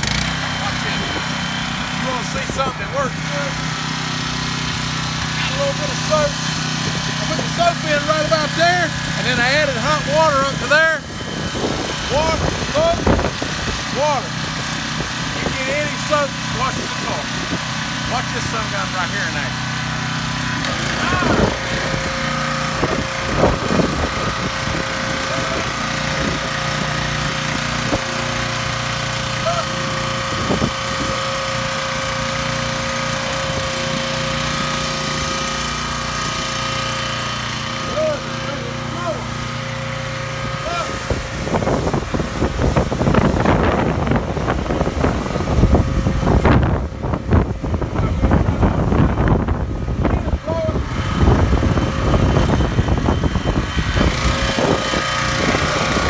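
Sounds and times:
pressure washer running: 0.0s - 56.0s
wind buffeting microphone: 11.0s - 13.9s, 21.1s - 26.6s, 40.9s - 56.0s.

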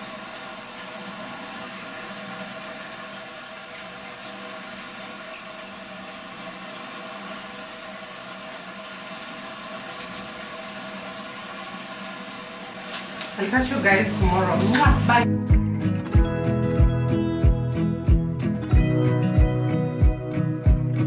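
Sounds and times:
shower water running: 0.0s - 15.6s.

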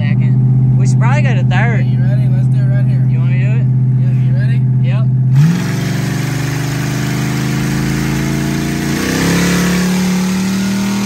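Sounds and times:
car engine pulling hard: 0.0s - 11.0s.

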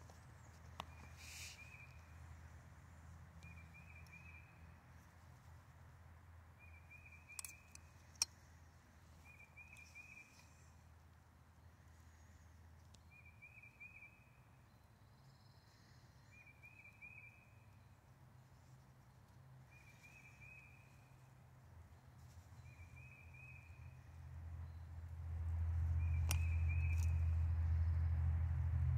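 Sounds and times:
sharp click: 26.2s - 27.2s.

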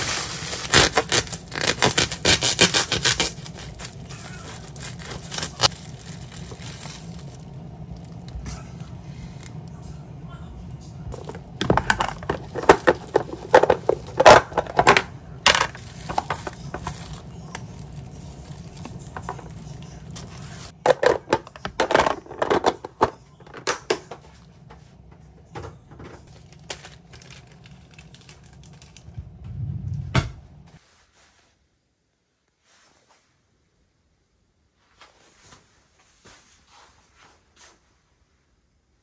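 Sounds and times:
low steady hum: 0.0s - 30.8s
plastic containers clicking and knocking: 11.2s - 17.6s, 20.8s - 24.3s.

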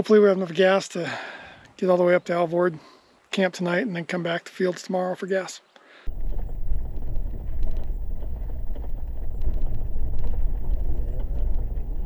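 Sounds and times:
faint ticks: 5.8s - 12.0s
truck engine and road rumble: 6.1s - 12.0s.

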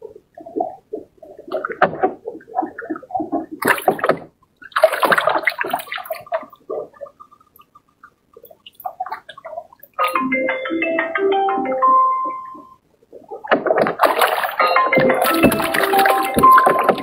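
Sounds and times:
fish splashing in water: 2.5s - 7.8s, 13.5s - 17.0s.

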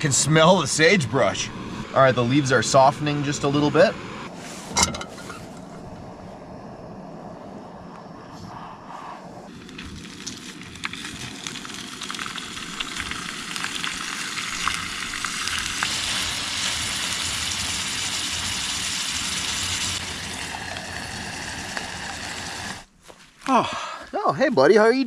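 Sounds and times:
meat sizzling in a pan: 10.8s - 22.8s.

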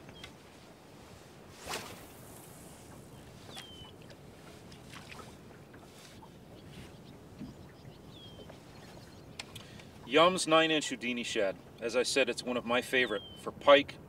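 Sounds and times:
wind and water hiss: 0.0s - 14.0s
fishing rod swishing: 1.5s - 3.8s.

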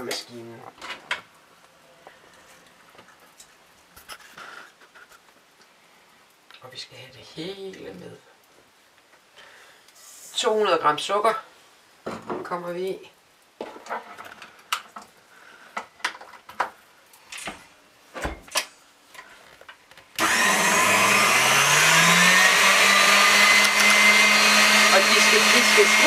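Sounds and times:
stand mixer motor whine: 20.2s - 26.0s
whisk beating eggs: 20.2s - 26.0s.

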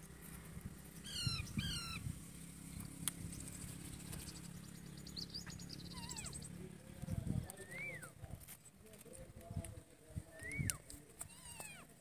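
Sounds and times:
parakeets calling: 0.8s - 8.2s.

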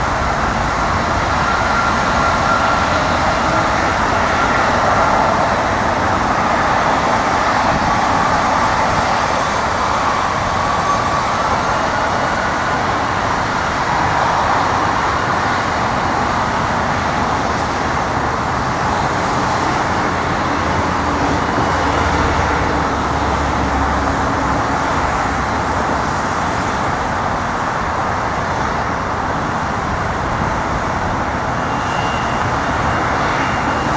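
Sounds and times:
jet engine roar at takeoff: 0.0s - 33.9s.

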